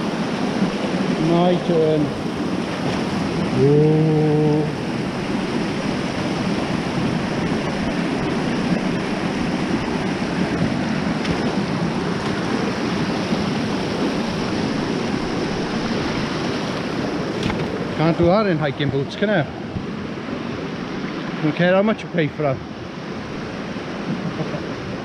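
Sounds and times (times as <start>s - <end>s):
stream rushing over rocks: 0.0s - 25.0s
man's short vocal sound: 3.6s - 4.7s.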